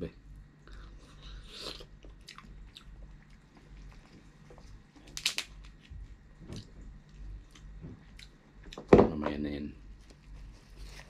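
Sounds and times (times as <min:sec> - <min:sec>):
soft chewing: 0:00.6 - 0:08.8
crab shell cracking: 0:05.0 - 0:05.8.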